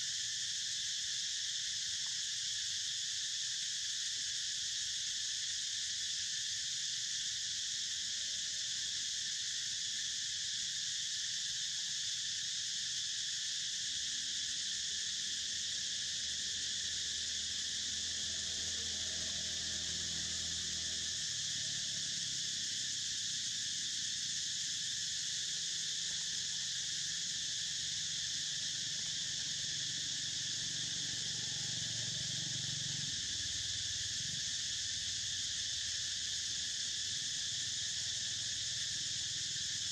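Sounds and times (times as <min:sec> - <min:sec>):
insects droning: 0:00.0 - 0:39.9.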